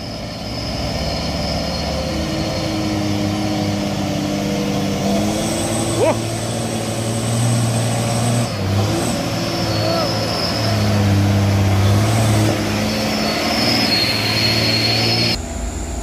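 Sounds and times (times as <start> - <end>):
dump truck diesel engine: 0.0 - 16.0
high whine: 12.6 - 16.0.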